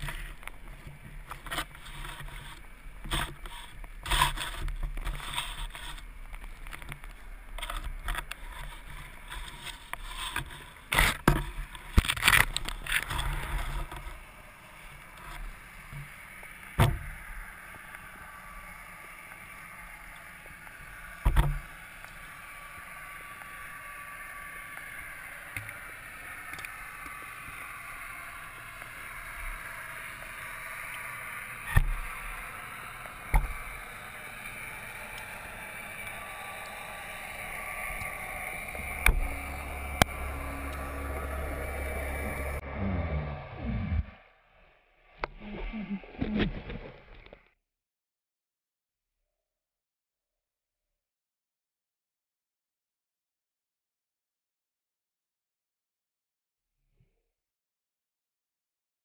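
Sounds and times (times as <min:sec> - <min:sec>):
steady underwater hiss: 0:00.0 - 0:42.6.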